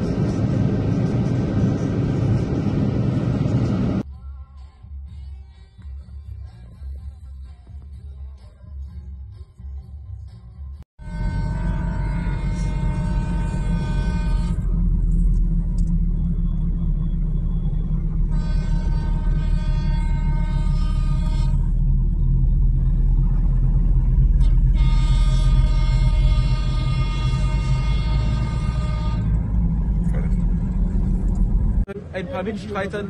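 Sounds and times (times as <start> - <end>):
low rumble of engines: 0.0 - 33.0
vehicle horns blasting: 11.0 - 15.2, 18.2 - 21.9, 24.3 - 29.8.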